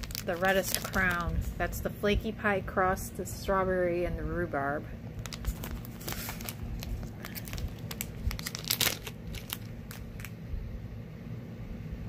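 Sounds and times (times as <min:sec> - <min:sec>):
plastic bag crinkling: 0:00.0 - 0:01.7, 0:05.2 - 0:10.4.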